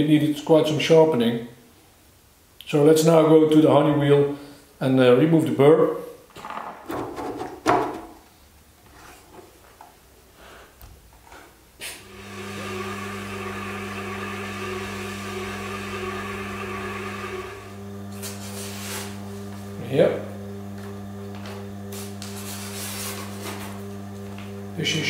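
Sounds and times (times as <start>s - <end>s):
sharpener motor humming: 12.0s - 25.0s.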